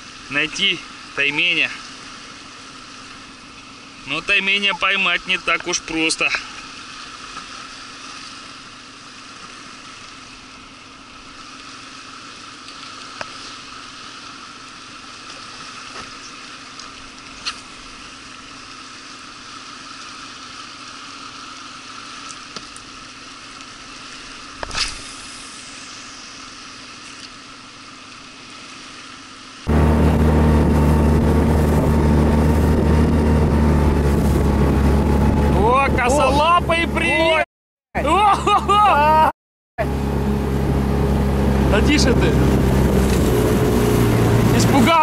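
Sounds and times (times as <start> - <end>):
flowing river water hiss: 0.0 - 30.5.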